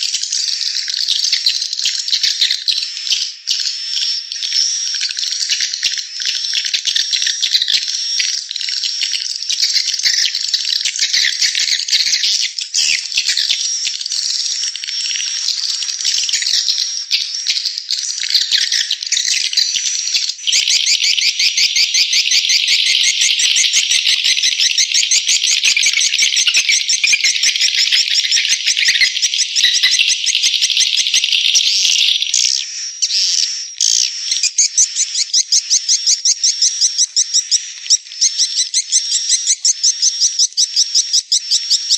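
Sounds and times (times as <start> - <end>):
swiftlet chirping twitter: 18.2 - 32.5.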